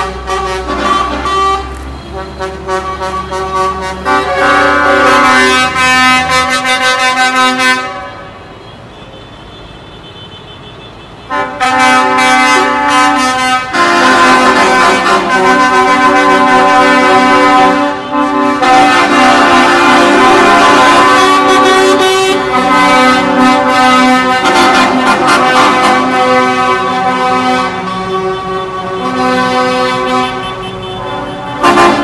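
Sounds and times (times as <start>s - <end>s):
diesel engine rumble: 0.0s - 9.5s, 11.1s - 32.0s
vehicle horns blaring: 0.0s - 32.0s.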